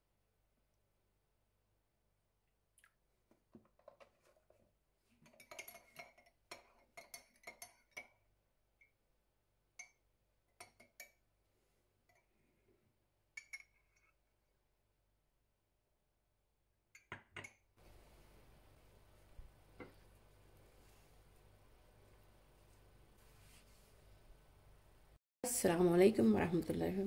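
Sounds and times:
teaspoon clinking in ceramic cup: 5.2s - 8.2s.

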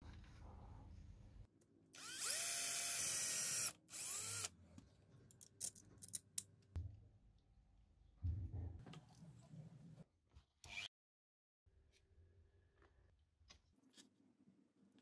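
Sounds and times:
cordless drill whining: 2.0s - 4.5s.

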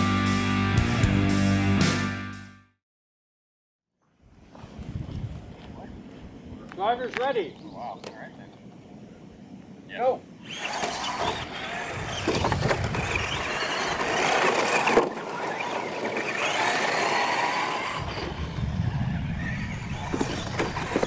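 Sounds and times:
tyres rustling on dirt: 10.4s - 18.3s, 19.8s - 21.0s
toy truck motors whining: 10.4s - 18.6s, 19.2s - 21.0s.

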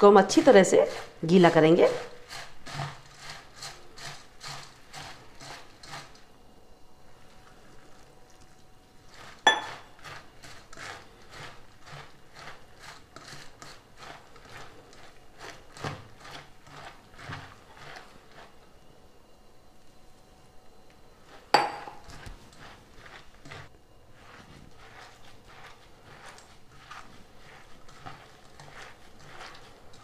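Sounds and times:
hand mixing wet grain in bowl: 0.0s - 30.0s
metallic clink on steel bowl: 9.5s - 9.8s.

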